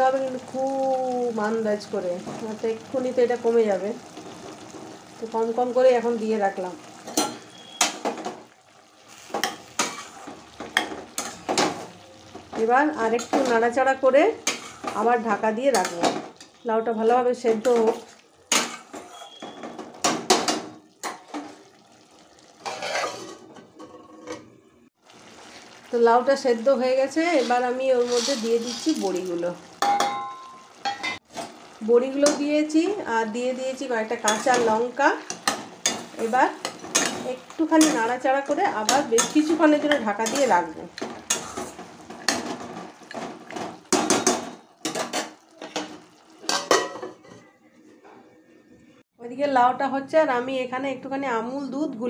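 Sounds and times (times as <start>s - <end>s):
spatula scraping and clattering: 9.1s - 11.8s, 14.4s - 15.1s, 17.6s - 21.6s, 22.6s - 24.5s, 27.3s - 29.0s, 34.2s - 38.2s, 38.8s - 47.5s.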